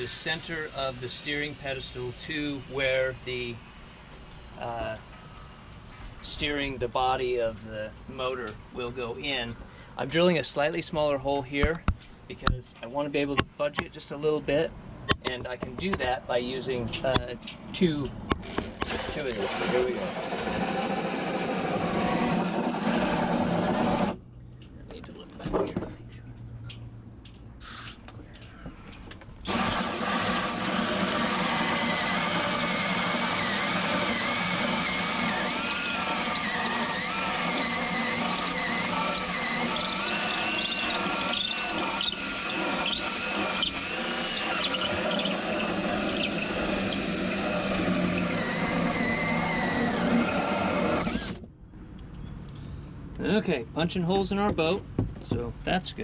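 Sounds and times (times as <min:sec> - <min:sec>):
drill with hole saw whining: 0:00.0 - 0:06.6, 0:18.3 - 0:24.2, 0:29.4 - 0:51.5.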